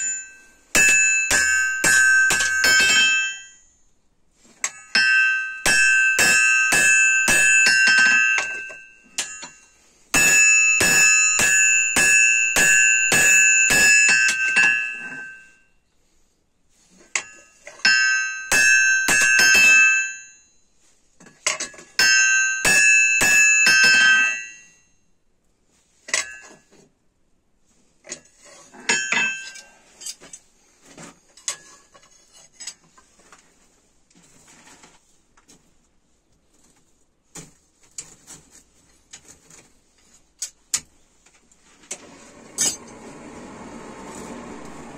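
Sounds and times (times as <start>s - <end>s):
hammer striking hot metal on anvil: 0.0s - 3.5s, 4.7s - 9.6s, 10.2s - 15.4s, 17.2s - 20.2s, 22.0s - 24.6s.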